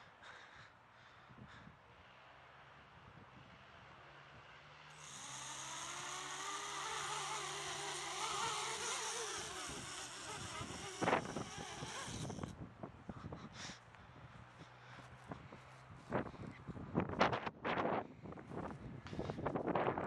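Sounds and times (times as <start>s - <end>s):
drone motors whining: 4.9s - 12.5s.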